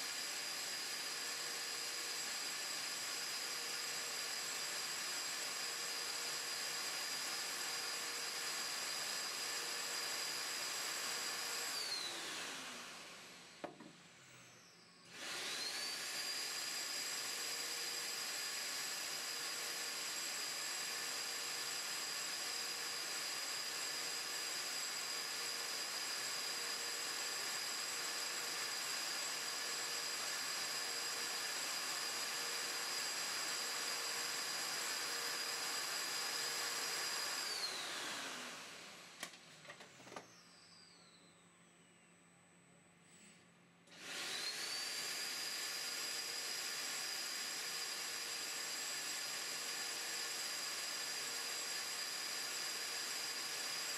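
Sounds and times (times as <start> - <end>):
shop vacuum motor whine: 0.0 - 41.8, 43.9 - 53.9.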